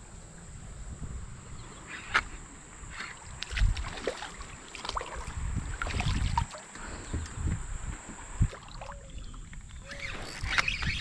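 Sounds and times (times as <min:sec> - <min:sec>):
fish splashing in water: 0:03.4 - 0:06.7.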